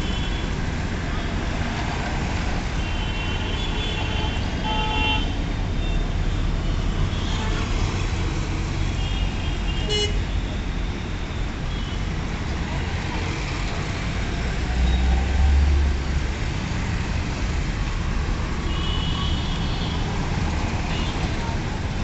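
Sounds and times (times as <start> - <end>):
road traffic rumble: 0.0 - 22.0
car horns tooting: 9.0 - 10.2.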